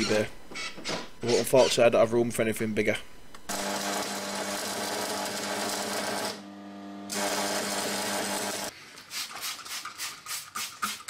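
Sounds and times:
welder humming: 3.3s - 8.7s
spray bottle squirts: 9.0s - 11.0s.

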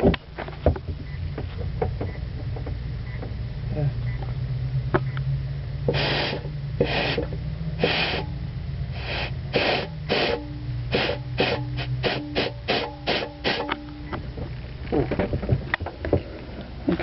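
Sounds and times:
steady hum: 0.0s - 17.0s
compressed air puffs: 5.9s - 8.3s, 8.9s - 13.7s.

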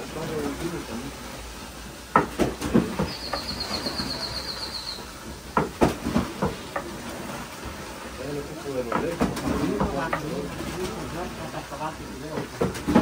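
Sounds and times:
sharp knocks and clatter: 2.1s - 3.5s, 5.5s - 7.0s, 8.9s - 10.3s, 12.3s - 13.0s.

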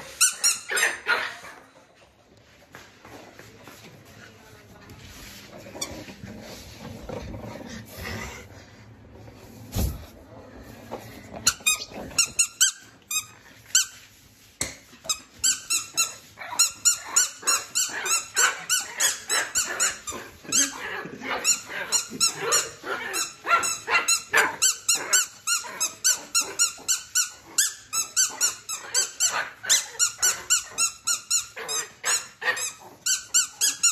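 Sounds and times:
squeaky ball toy squeaking: 0.0s - 1.2s, 11.4s - 14.0s, 15.0s - 20.8s, 21.4s - 33.9s.

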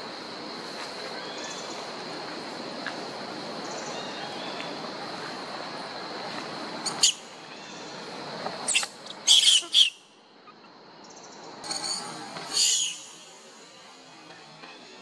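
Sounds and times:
background hiss: 0.0s - 15.0s
monkeys screeching: 8.7s - 10.0s, 11.7s - 13.1s.

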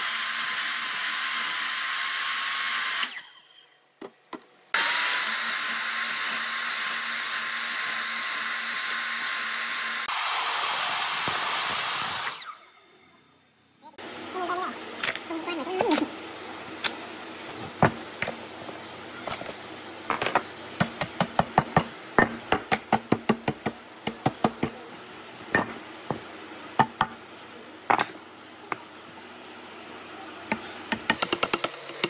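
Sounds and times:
wooden mallet striking chisel: 30.5s - 32.0s.

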